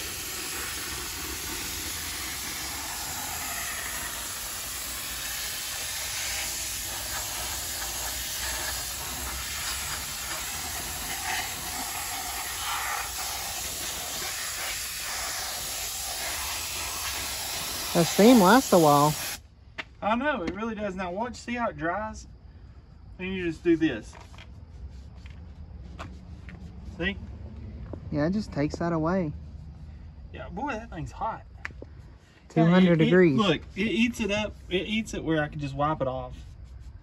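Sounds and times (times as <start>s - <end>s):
steam cleaner hissing: 0.0s - 19.4s.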